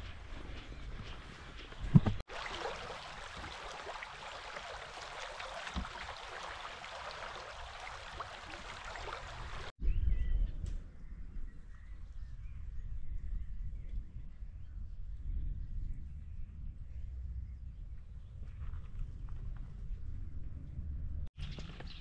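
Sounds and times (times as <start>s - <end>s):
stream babbling: 2.3s - 9.7s
wind rumbling on microphone: 3.0s - 22.0s.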